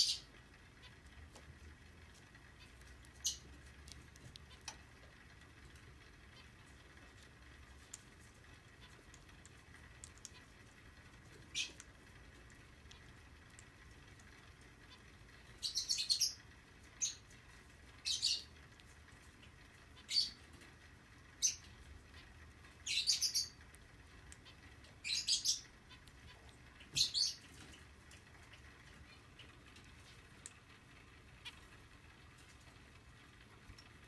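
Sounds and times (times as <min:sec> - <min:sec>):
finch chirping: 0:00.0 - 0:01.1, 0:02.5 - 0:05.1, 0:06.0 - 0:10.6, 0:11.2 - 0:18.7, 0:19.4 - 0:20.7, 0:21.4 - 0:23.6, 0:24.2 - 0:30.5, 0:31.2 - 0:31.7.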